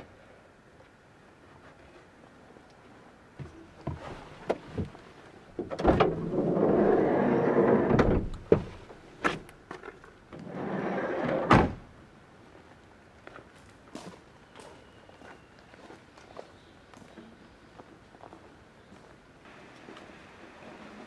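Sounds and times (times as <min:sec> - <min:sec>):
door shutting with thud: 0:05.6 - 0:06.3, 0:07.7 - 0:08.7, 0:11.3 - 0:11.8
sliding door rolling: 0:05.8 - 0:08.5, 0:10.4 - 0:11.8.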